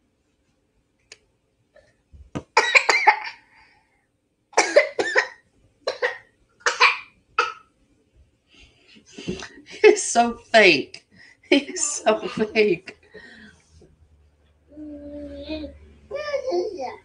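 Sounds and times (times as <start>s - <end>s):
person coughing: 2.6s - 3.4s, 4.6s - 7.6s.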